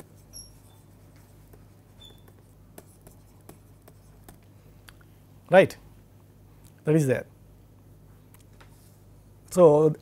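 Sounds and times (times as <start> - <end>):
stylus scratching on pen tablet: 0.0 - 4.4
high squeaks: 0.3 - 0.9, 2.0 - 2.4.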